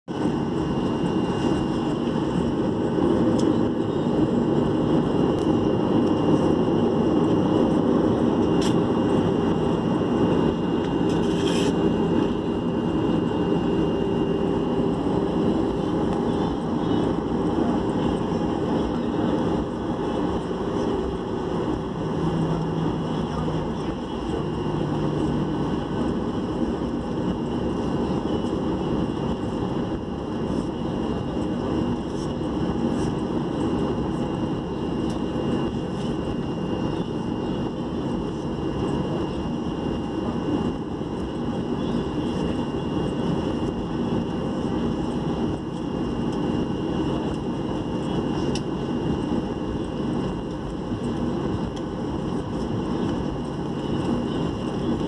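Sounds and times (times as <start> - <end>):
jet engines low hum: 0.0 - 55.0.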